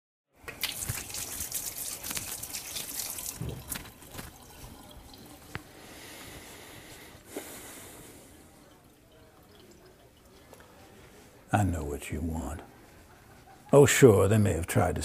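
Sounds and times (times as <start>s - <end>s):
tap running into sink: 2.1s - 4.9s.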